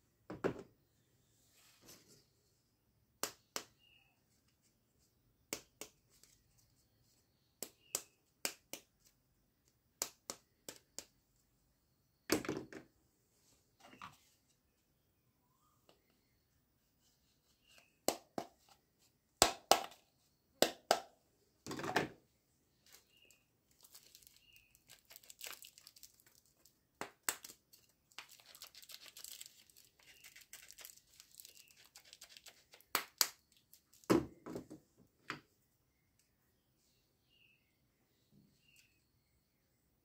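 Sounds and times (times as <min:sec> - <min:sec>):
plastic wrapping crinkling: 0:22.9 - 0:34.1.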